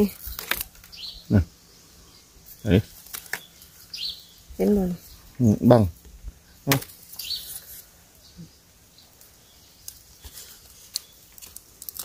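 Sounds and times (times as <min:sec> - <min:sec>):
bamboo shoots being handled: 0:00.0 - 0:01.0, 0:02.5 - 0:03.9, 0:06.7 - 0:08.2, 0:09.1 - 0:12.0
high bird chirp: 0:00.9 - 0:01.3, 0:02.0 - 0:05.4, 0:06.5 - 0:11.3.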